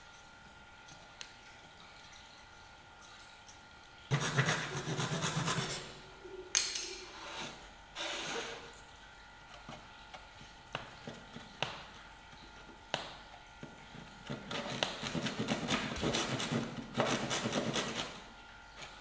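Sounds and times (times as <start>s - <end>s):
hand saw cutting wood: 4.1s - 5.9s, 14.3s - 18.2s.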